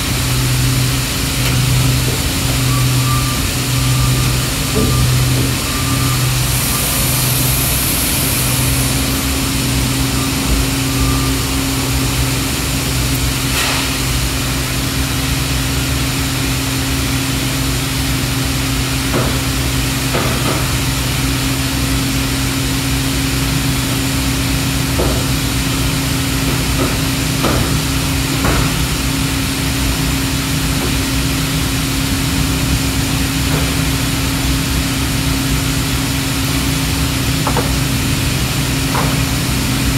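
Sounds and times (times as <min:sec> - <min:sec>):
machine hum: 0:00.0 - 0:13.5.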